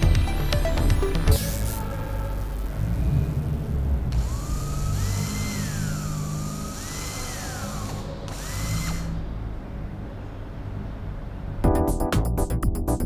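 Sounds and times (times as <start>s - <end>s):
small electric motor whirring: 1.3s - 9.3s.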